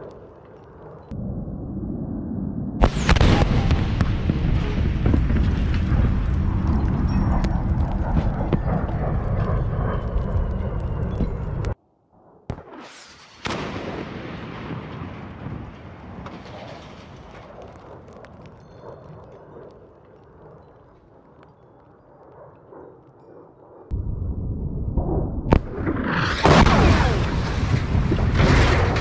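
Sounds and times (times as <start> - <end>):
explosion rumble: 1.1 - 11.8, 23.9 - 29.0
missile blast: 2.8 - 7.1, 12.5 - 17.1, 24.1 - 29.0.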